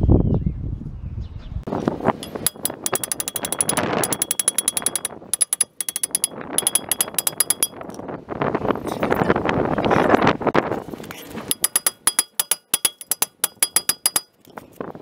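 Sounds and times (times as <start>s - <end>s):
hammer striking metal rotor: 2.2s - 8.0s, 11.5s - 14.4s.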